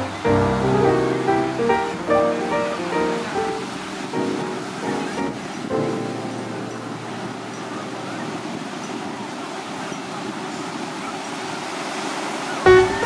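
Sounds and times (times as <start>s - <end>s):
plucked-string music: 0.0s - 7.7s, 12.7s - 13.0s
water rushing: 0.0s - 13.0s.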